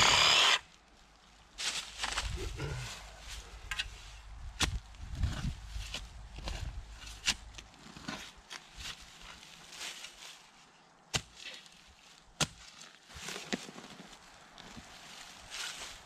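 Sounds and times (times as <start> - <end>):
shovel scraping dirt and leaves: 0.0 - 0.9, 1.6 - 16.0
shovel striking soil: 4.6 - 9.0, 11.1 - 11.7, 12.4 - 12.6.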